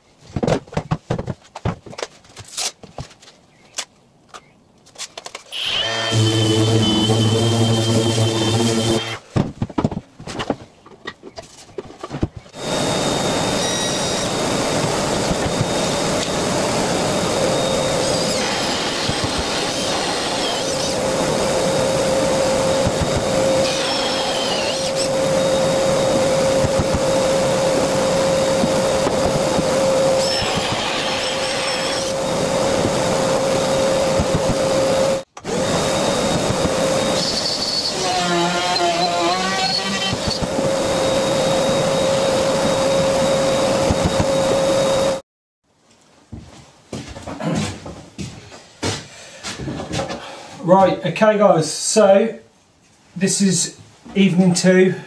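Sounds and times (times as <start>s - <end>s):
cordless drill with hole saw: 5.5s - 9.2s, 12.6s - 45.2s
trim router cutting: 5.5s - 9.2s, 12.6s - 45.2s
dust extractor humming: 5.6s - 9.2s, 12.6s - 45.2s.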